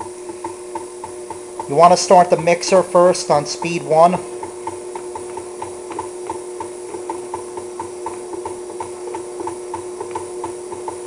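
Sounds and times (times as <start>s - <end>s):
beater clicking in bowl: 0.0s - 11.0s
stand mixer motor hum: 0.0s - 11.0s.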